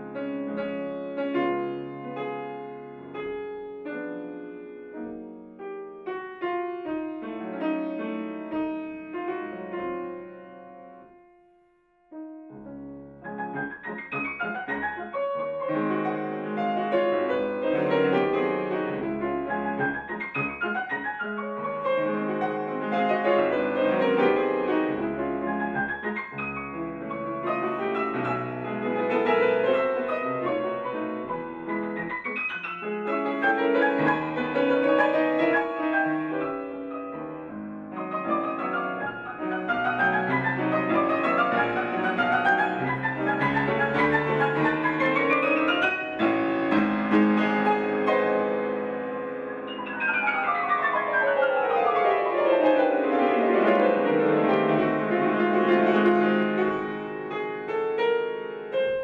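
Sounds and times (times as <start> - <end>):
classical piano piece: 0.0 - 59.0.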